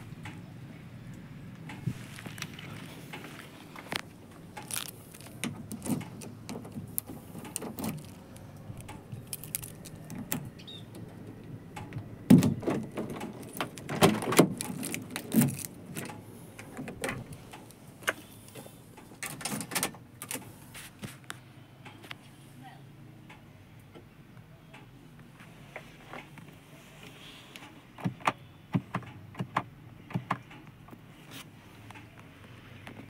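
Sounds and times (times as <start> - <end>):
car door opening and shutting: 1.8 - 20.6.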